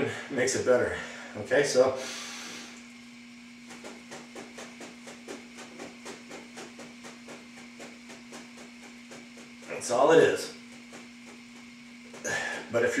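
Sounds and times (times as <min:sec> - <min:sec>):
steady low hum: 0:00.0 - 0:13.0
rhythmic rustling and tapping: 0:03.6 - 0:13.0.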